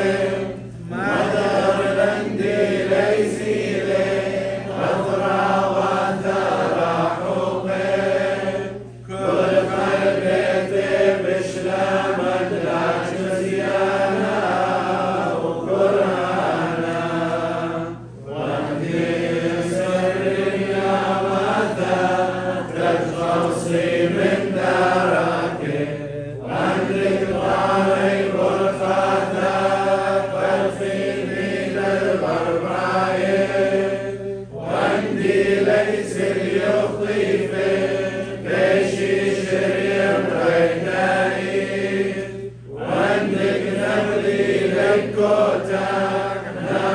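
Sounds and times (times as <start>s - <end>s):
voices singing a chant: 0.0s - 46.9s.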